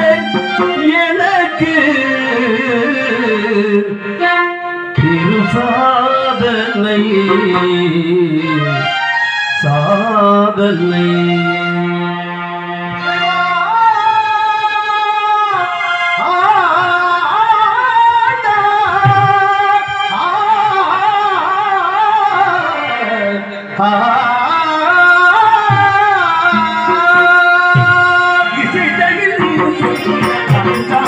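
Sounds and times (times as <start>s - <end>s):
man singing: 0.0s - 8.9s, 9.6s - 31.0s
held keyboard notes: 24.9s - 31.0s
tabla strokes: 25.4s - 31.0s.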